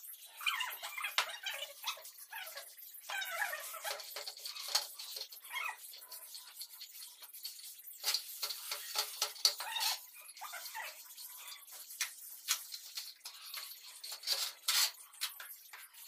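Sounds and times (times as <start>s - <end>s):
metal straightedge scraping mortar: 13.2s - 15.1s.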